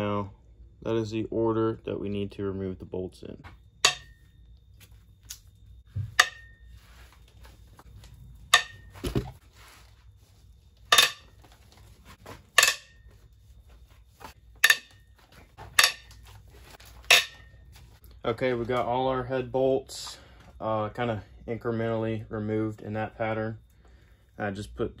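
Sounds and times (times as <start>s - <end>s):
dull thump: 5.9s - 6.5s.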